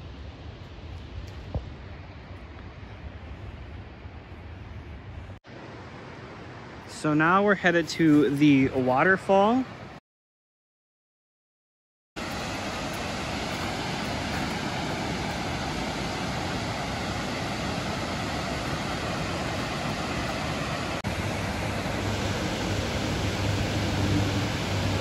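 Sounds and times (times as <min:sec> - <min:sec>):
water pouring over a dam: 0:12.2 - 0:25.0.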